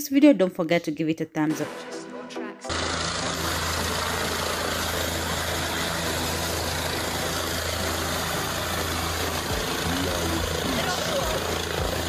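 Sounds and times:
rotor rushing noise: 2.6 - 12.0
helicopter engine hum: 2.7 - 12.0.

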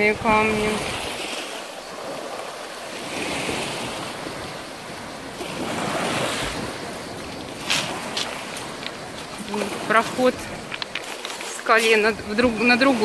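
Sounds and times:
waves washing onto pebbly beach: 0.0 - 13.0
wind on microphone: 0.0 - 13.0.

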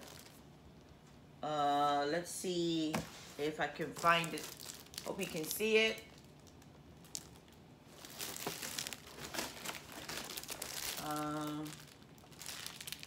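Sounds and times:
packaging crinkling: 0.0 - 1.0, 3.8 - 13.0.

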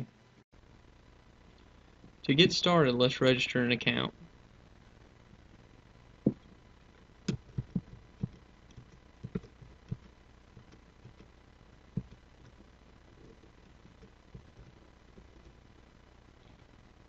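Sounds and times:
low steady hiss: 0.0 - 17.0
keyboard typing: 7.3 - 11.3, 11.9 - 12.6.

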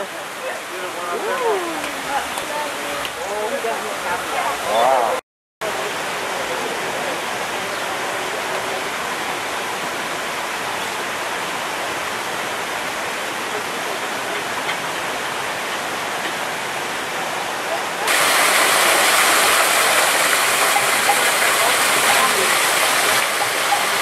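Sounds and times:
waterfall rushing: 0.0 - 24.0.

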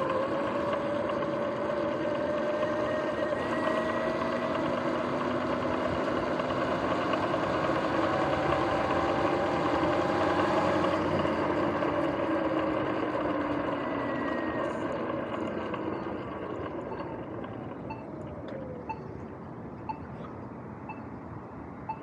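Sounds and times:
electric motor whine: 0.0 - 18.8
tyres rolling noise: 0.0 - 18.8.

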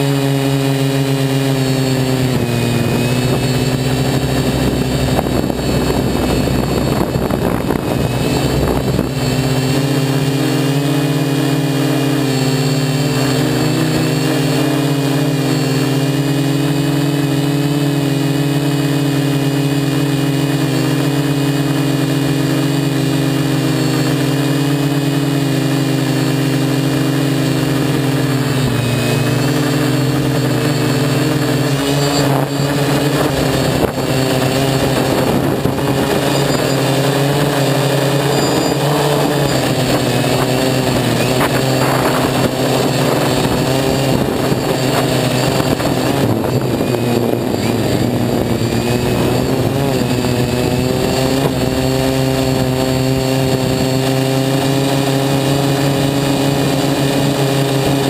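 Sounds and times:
quadcopter propellers humming: 0.0 - 58.0.

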